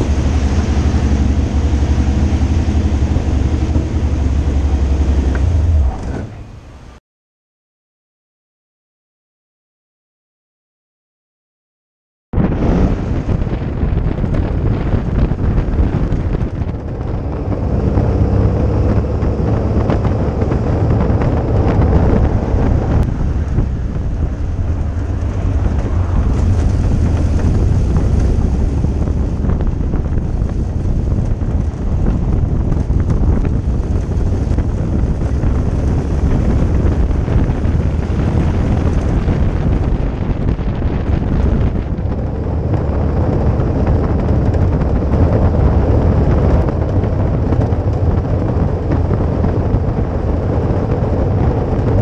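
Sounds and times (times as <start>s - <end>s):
car engine and road rumble: 0.0s - 7.0s, 12.4s - 52.0s
wind noise on microphone: 0.0s - 7.0s, 12.3s - 52.0s.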